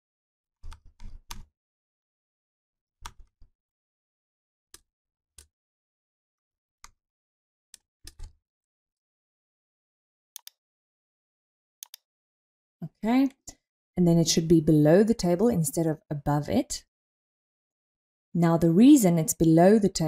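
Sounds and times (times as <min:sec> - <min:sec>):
mouse clicks: 0:11.8 - 0:12.0.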